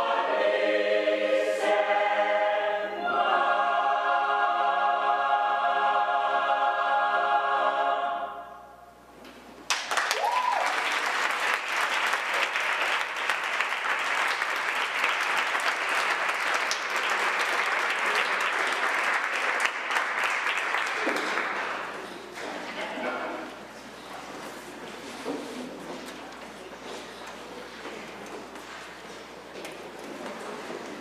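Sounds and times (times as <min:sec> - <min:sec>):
choir singing a chord: 0:00.0 - 0:09.0
audience applause: 0:09.7 - 0:22.0
person whooping: 0:10.1 - 0:10.8.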